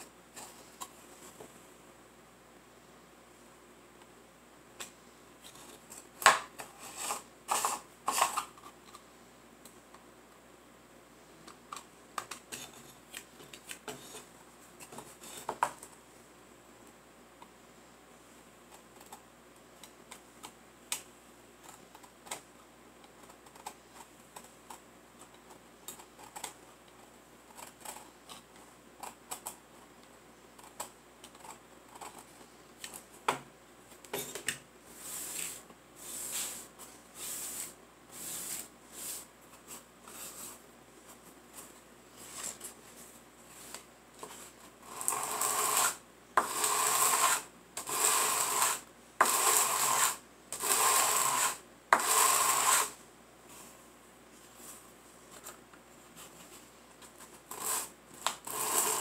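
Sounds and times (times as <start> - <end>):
knife shaving wood: 44.9 - 52.9
wood block sanding on sandpaper: 45.1 - 53.0.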